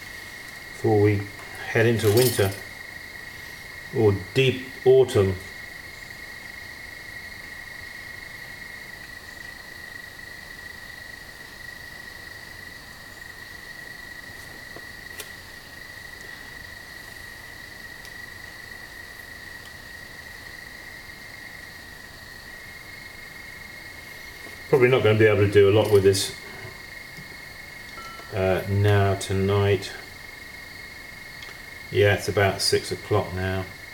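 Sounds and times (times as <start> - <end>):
crickets chirping: 0.0 - 33.9.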